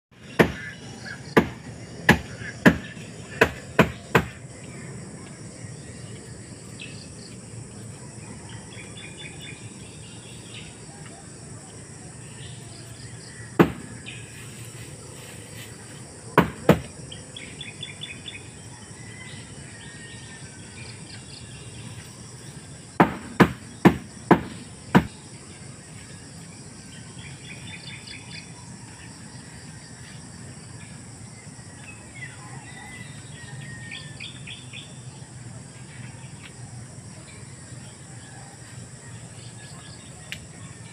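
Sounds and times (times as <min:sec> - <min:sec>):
insects buzzing: 0:00.1 - 0:40.9
sharp knocks: 0:01.4 - 0:04.4, 0:13.6 - 0:14.0, 0:16.4 - 0:16.9, 0:23.0 - 0:25.2.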